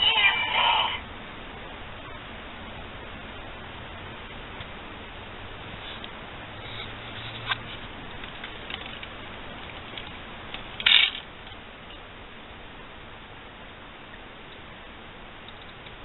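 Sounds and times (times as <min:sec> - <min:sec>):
steady hiss: 0:00.0 - 0:16.0.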